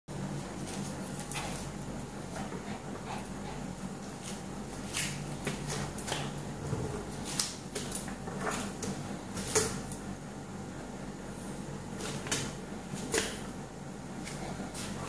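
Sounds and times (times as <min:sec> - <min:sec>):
paws scraping on tile: 0:00.6 - 0:06.8.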